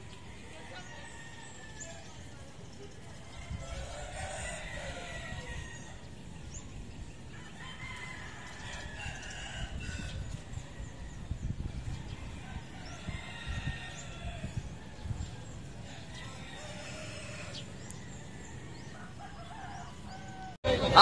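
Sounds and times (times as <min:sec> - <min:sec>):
rooster crowing: 0:03.4 - 0:06.2, 0:07.3 - 0:10.3, 0:12.3 - 0:15.0, 0:15.9 - 0:20.6.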